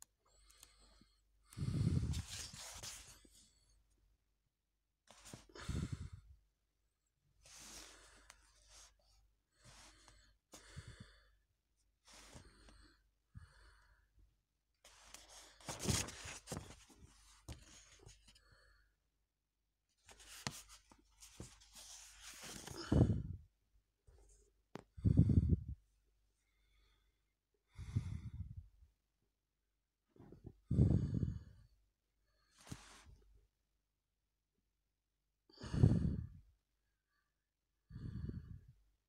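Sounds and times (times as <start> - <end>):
paper pages rustling: 2.1 - 3.1, 15.0 - 18.1, 20.1 - 22.8.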